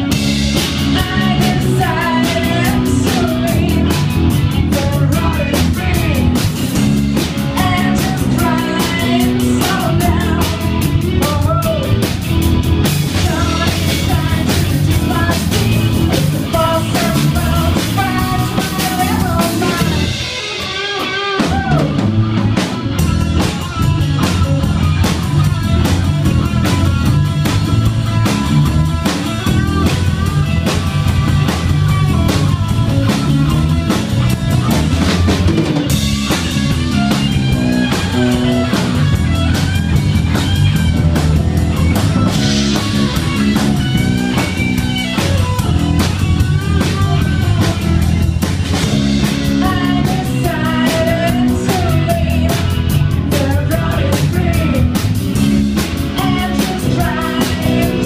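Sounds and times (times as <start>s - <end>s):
bass guitar: 0.0s - 58.0s
drum kit: 0.0s - 58.0s
electric guitar: 0.0s - 58.0s
person singing: 0.6s - 6.4s, 7.4s - 12.2s, 13.1s - 22.0s, 49.4s - 55.0s, 56.0s - 58.0s.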